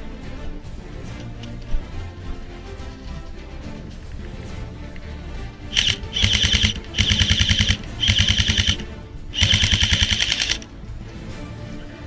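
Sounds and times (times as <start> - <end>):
airsoft rifle bursts: 5.7 - 10.7.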